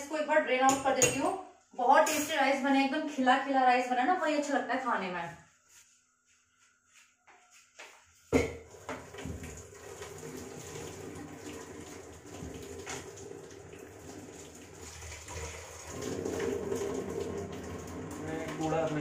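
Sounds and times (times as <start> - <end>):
knock on steel pot: 8.3 - 8.6
water pouring into sink: 8.6 - 19.0.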